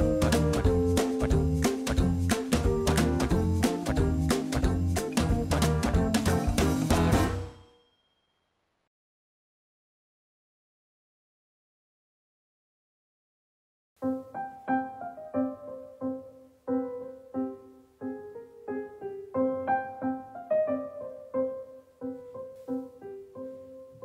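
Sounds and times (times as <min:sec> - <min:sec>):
gentle piano music: 0:00.0 - 0:07.4, 0:14.0 - 0:24.0.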